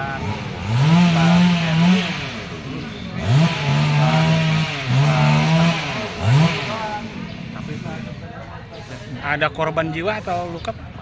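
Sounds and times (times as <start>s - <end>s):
chainsaw revving: 0.0s - 8.3s.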